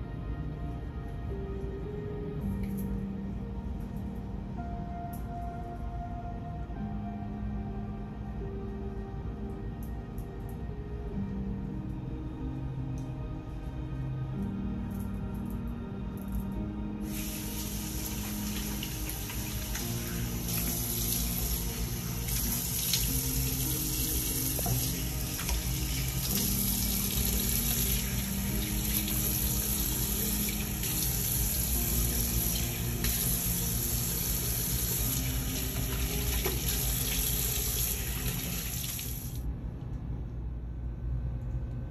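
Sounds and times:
tap running into sink: 0:35.8 - 0:37.1.

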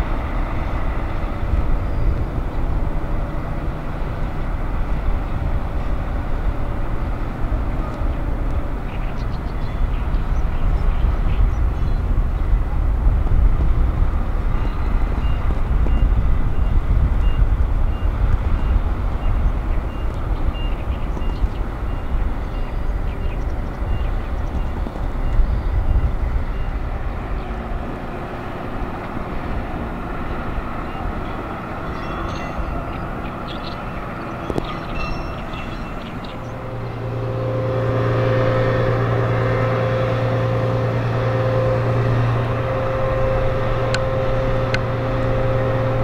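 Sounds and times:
diesel truck engine rumbling: 0:00.0 - 0:46.0.

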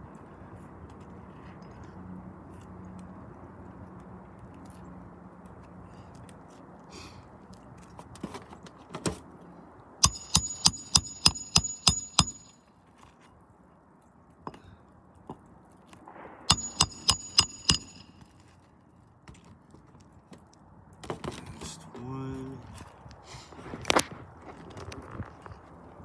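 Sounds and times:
hammer striking nails: 0:10.0 - 0:12.6, 0:16.5 - 0:18.3.

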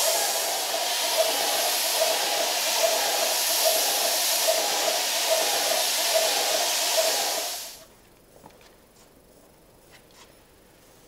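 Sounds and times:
spray gun hissing: 0:00.0 - 0:07.8.

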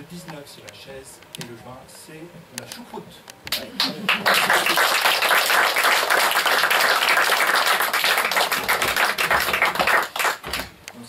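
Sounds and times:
audience clapping: 0:03.5 - 0:10.8.

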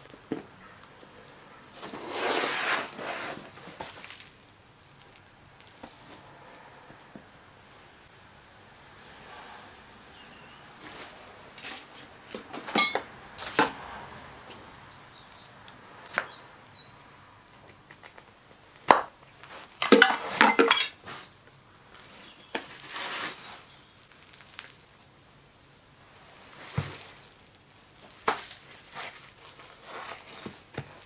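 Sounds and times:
soft scraping rustle: 0:01.7 - 0:04.4, 0:10.8 - 0:12.6, 0:21.0 - 0:23.7, 0:28.4 - 0:31.0.

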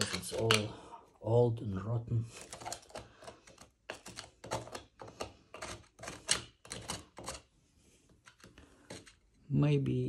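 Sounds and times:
screwdriver scraping grout: 0:00.0 - 0:00.7, 0:02.3 - 0:07.5, 0:08.1 - 0:09.3.

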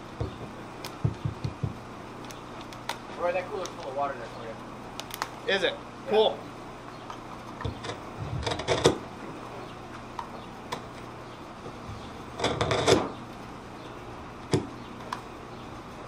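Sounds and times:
rapid clicking and rattling: 0:07.6 - 0:09.0.

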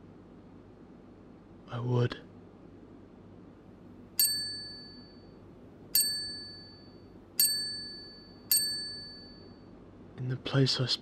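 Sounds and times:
metallic bell-like ding: 0:04.2 - 0:05.4, 0:06.0 - 0:09.6.

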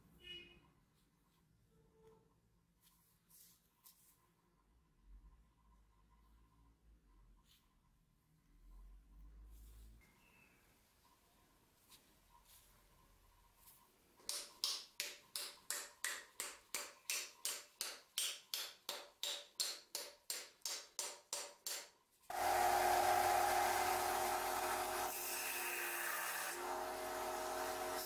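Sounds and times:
hammer tapping wooden wedge: 0:14.2 - 0:22.0
band saw running: 0:22.3 - 0:28.0.

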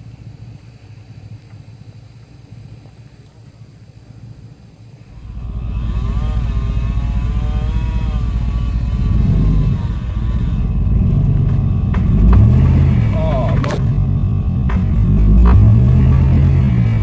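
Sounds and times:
vehicle engine rumbling: 0:00.0 - 0:17.0.

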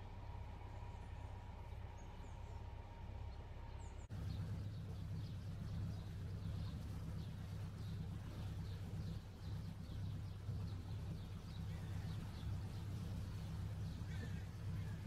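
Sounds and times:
boat engine humming: 0:00.0 - 0:15.0
small birds chirping: 0:03.3 - 0:15.0.

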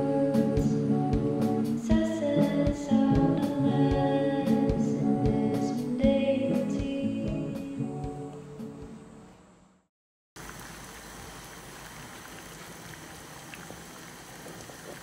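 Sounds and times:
song with singing guitar and beat: 0:00.0 - 0:08.3.

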